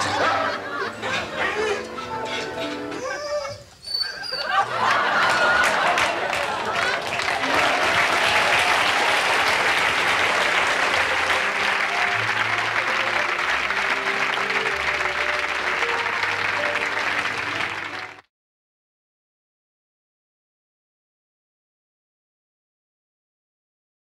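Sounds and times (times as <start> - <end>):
audience applauding: 4.4 - 18.3.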